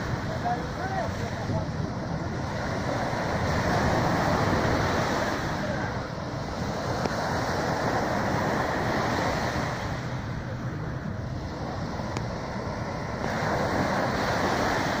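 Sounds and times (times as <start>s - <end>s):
waves breaking on beach: 0.0s - 15.0s.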